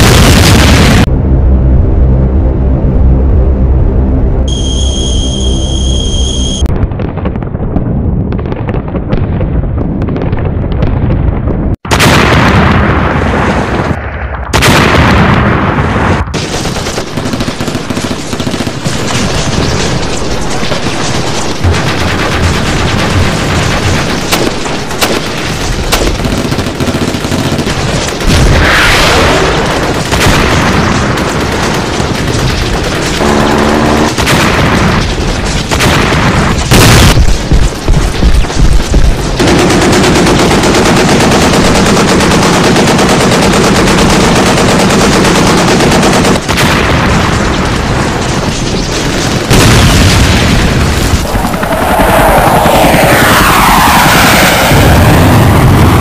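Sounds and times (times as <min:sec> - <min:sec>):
booming explosions: 0:00.0 - 0:56.0
falling whistle: 0:04.5 - 0:06.7
rapid gunfire: 0:16.3 - 0:52.9.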